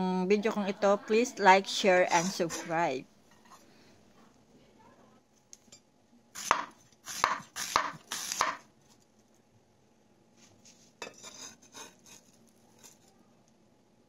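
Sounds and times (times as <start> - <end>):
knife chopping on wooden board: 6.4 - 8.6.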